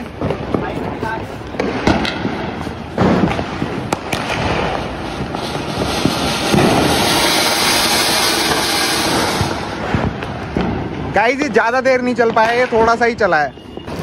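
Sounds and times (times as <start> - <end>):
sharp firework cracks: 0.0 - 13.1
firework spraying sparks hissing: 3.6 - 10.5.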